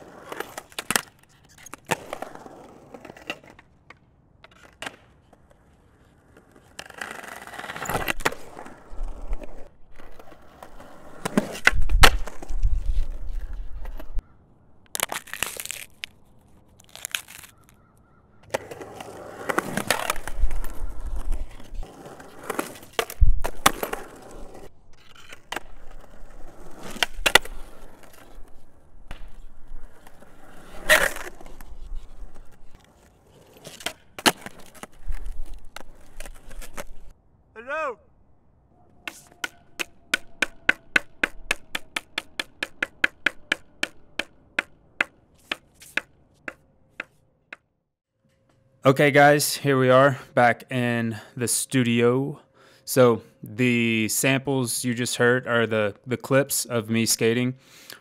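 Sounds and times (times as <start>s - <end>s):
skateboard wheels rolling: 0.0s - 14.3s, 18.4s - 37.2s, 38.9s - 47.3s
skateboard clacks and landings: 39.0s - 47.6s.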